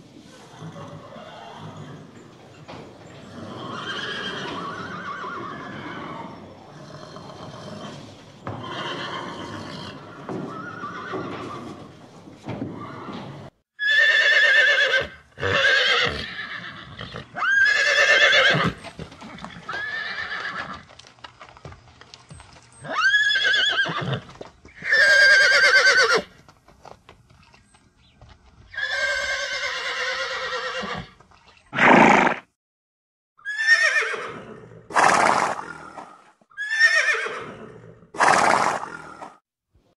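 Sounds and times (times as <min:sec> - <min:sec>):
horses neighing: 0:00.2 - 0:20.9, 0:22.7 - 0:26.4, 0:28.7 - 0:32.4, 0:33.4 - 0:39.3.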